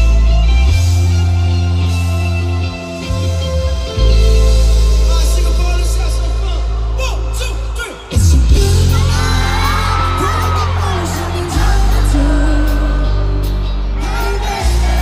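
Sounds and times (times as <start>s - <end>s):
heavy bass: 0.0s - 15.0s
live pop band: 0.0s - 15.0s
person singing: 8.2s - 15.0s.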